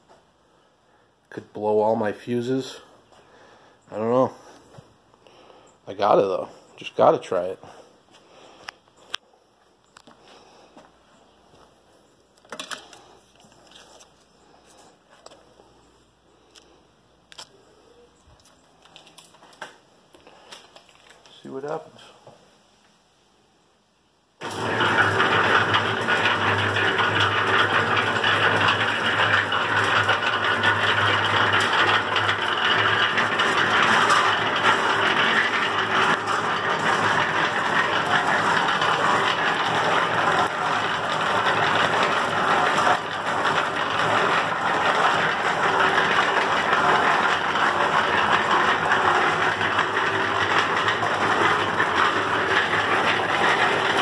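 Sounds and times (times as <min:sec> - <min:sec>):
cement mixer running: 0:01.3 - 0:08.7, 0:24.4 - 0:54.0
belt drive and drum rattle: 0:24.4 - 0:54.0
electric motor hum: 0:24.4 - 0:54.0.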